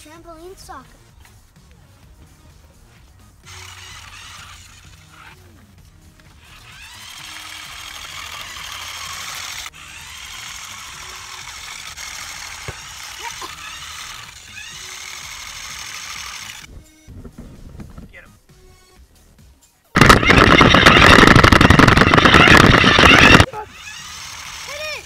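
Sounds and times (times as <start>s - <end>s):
small electric motors whirring: 3.4s - 5.6s, 6.2s - 16.7s, 20.0s - 25.0s.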